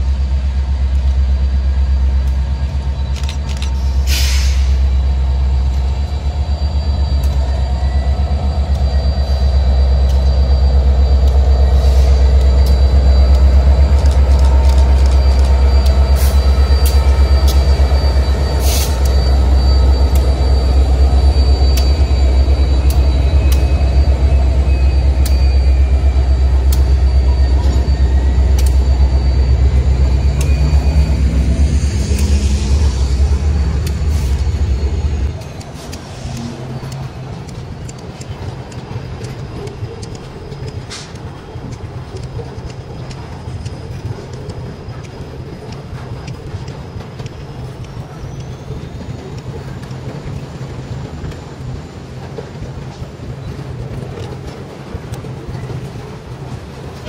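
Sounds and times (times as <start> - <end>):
locomotive engine drone: 0.0 - 57.0
high wheel squeal: 2.6 - 41.2, 47.3 - 54.6
wheels clicking over rail joints: 35.2 - 57.0.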